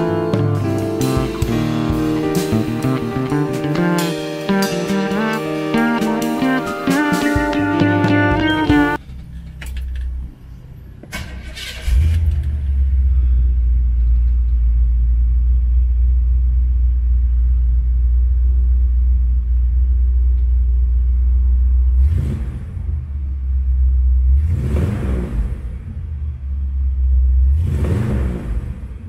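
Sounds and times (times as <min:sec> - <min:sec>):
engine starting and idling: 0:09.0 - 0:14.8.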